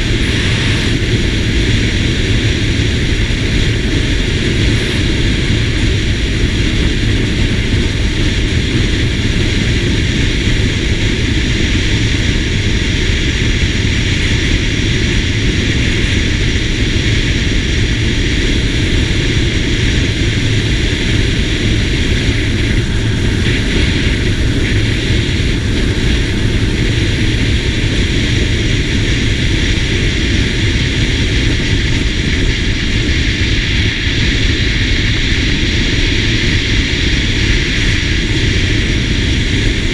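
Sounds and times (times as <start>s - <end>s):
scooter engine droning: 0.0s - 31.2s
wind on microphone: 0.0s - 39.9s.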